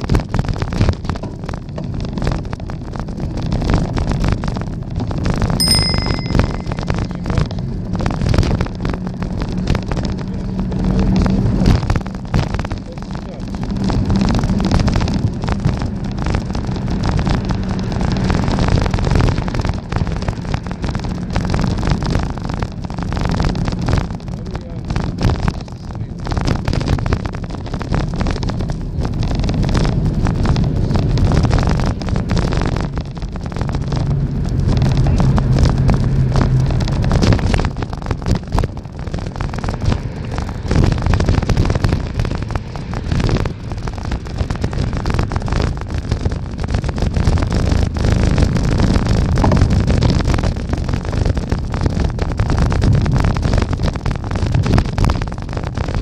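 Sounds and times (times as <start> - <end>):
road noise: 0.0 - 56.0
wind buffeting microphone: 0.0 - 56.0
low steady hum: 5.6 - 8.2.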